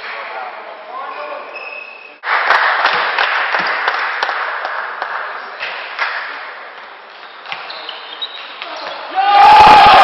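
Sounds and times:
spectators clapping: 0:02.2 - 0:05.3.

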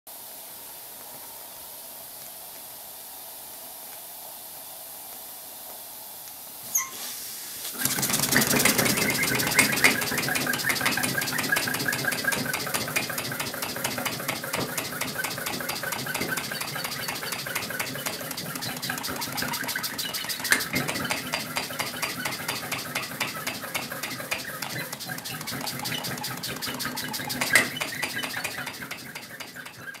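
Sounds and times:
steam hissing: 0:00.1 - 0:30.0
steam engine rapid clatter: 0:07.6 - 0:30.0.

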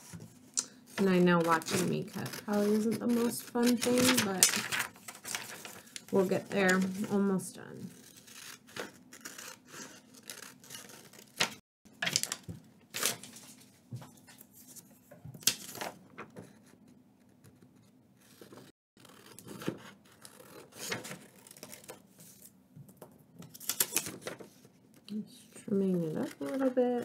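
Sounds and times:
scissors snipping paper: 0:00.6 - 0:07.2, 0:25.8 - 0:27.0
paper rustling: 0:01.0 - 0:07.3, 0:23.5 - 0:24.8.

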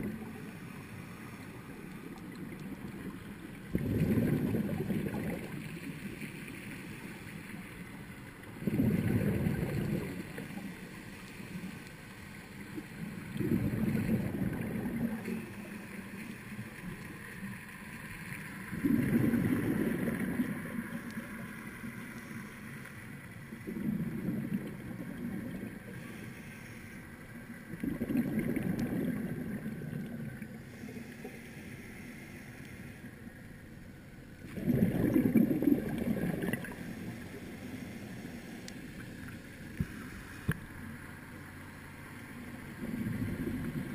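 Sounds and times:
exhaled bubbles rushing: 0:02.3 - 0:06.2, 0:08.6 - 0:10.7, 0:13.1 - 0:15.5, 0:18.7 - 0:20.9, 0:23.6 - 0:26.0, 0:27.7 - 0:30.5, 0:34.4 - 0:37.7, 0:42.7 - 0:43.9
regulator hiss: 0:36.6 - 0:40.8.

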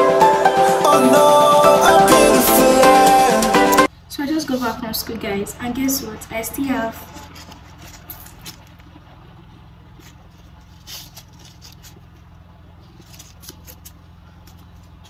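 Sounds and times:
crisp rustles of paper banknotes: 0:07.0 - 0:08.8, 0:10.0 - 0:12.3, 0:12.9 - 0:15.0.

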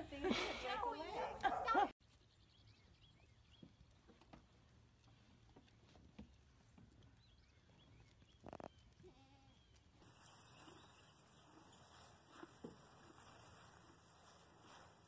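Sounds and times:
goat kid bleating: 0:09.0 - 0:09.6.

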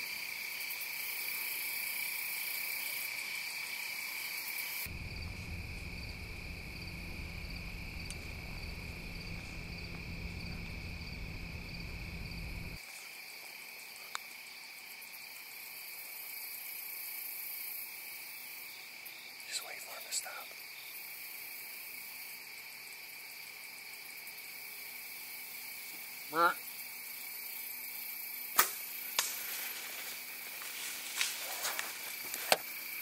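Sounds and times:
insects chirping: 0:00.0 - 0:33.0
low rumble: 0:04.9 - 0:12.8.

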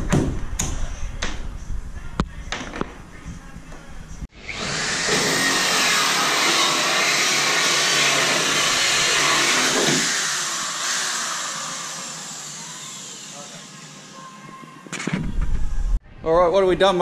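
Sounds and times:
cordless drill mixing foam: 0:04.3 - 0:14.6.

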